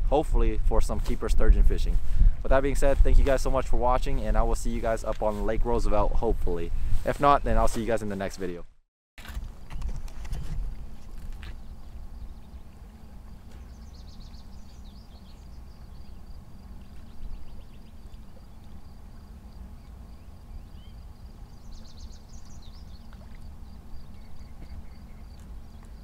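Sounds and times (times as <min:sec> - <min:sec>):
steady low rumble: 0:00.0 - 0:07.8
birds chirping: 0:11.0 - 0:26.0.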